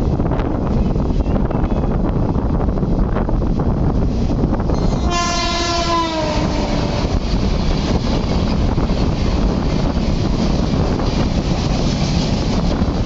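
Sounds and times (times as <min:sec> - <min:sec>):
train rumble and rail clatter: 0:00.0 - 0:13.0
train horn: 0:04.7 - 0:07.2.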